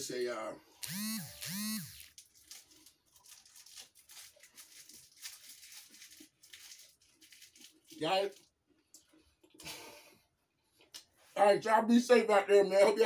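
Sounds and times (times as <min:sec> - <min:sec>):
candy bar crunching and crinkling: 0:02.0 - 0:08.5.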